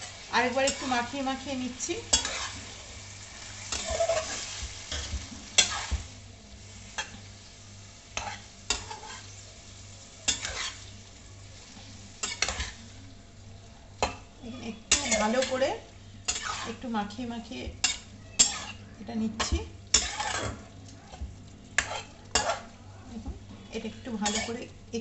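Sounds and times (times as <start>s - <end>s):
low sizzle: 0.0s - 25.0s
metal spatula scraping pan: 2.0s - 2.8s, 3.6s - 6.0s, 8.2s - 9.3s, 10.3s - 10.9s, 14.8s - 15.7s, 16.3s - 16.9s, 17.8s - 18.8s, 19.4s - 20.6s, 24.2s - 24.6s.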